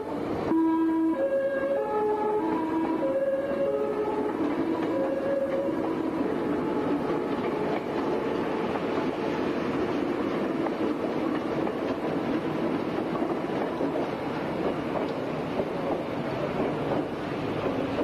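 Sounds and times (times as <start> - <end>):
train music horn: 0.0 - 8.9
electric train rolling past: 0.0 - 18.0.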